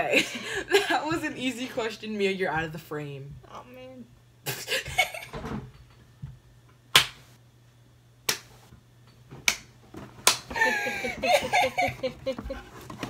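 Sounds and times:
sharp hand claps: 7.0s - 7.2s, 8.3s - 8.5s, 9.5s - 9.7s, 10.3s - 10.5s.

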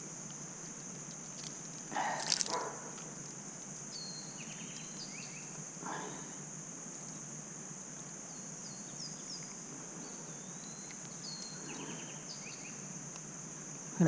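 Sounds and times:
insects droning: 0.0s - 14.0s
bird chirps: 3.9s - 5.6s, 8.3s - 12.8s.

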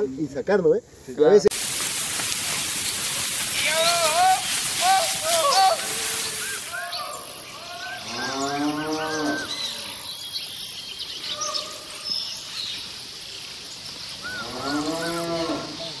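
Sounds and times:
steady high hiss: 0.0s - 16.0s
cattle mooing: 7.6s - 10.1s, 14.4s - 16.0s.

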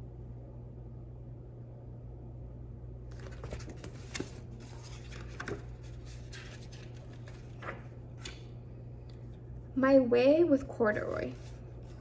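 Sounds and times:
low hum: 0.0s - 12.0s
book pages rustling: 3.1s - 8.5s, 11.3s - 12.0s.

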